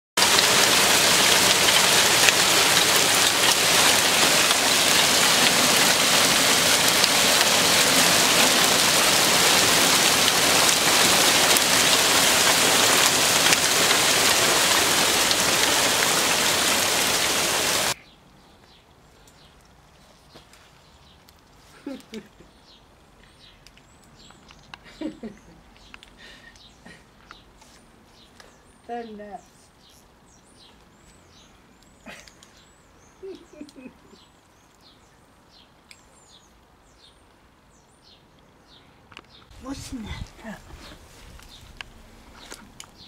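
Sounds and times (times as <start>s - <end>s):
hailstones striking the ground: 0.2s - 18.0s, 39.6s - 43.0s.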